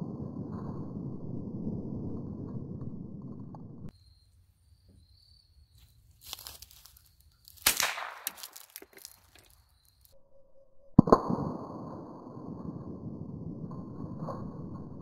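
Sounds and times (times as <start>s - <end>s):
rifle shots: 7.6s - 8.7s.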